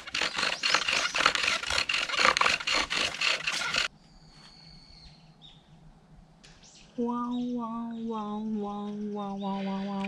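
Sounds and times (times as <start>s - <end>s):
wooden spindle grinding and squeaking: 0.0s - 3.9s.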